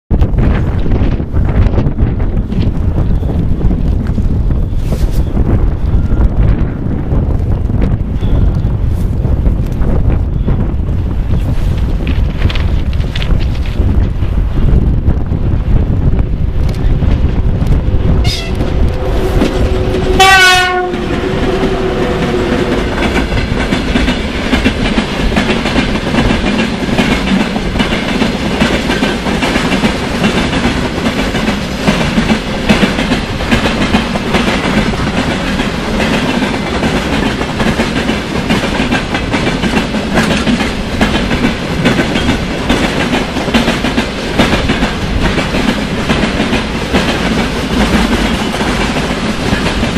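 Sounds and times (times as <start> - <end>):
train wheels clickety-clack: 0.3 - 14.4, 15.9 - 49.9
locomotive horn: 18.2 - 22.7.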